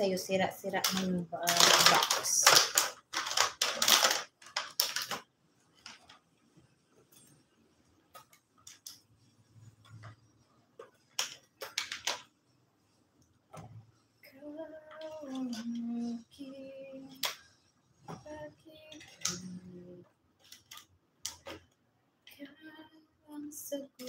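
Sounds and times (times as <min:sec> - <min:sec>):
plastic wrapping rustling: 0:00.1 - 0:07.3, 0:10.0 - 0:12.3, 0:20.4 - 0:21.6.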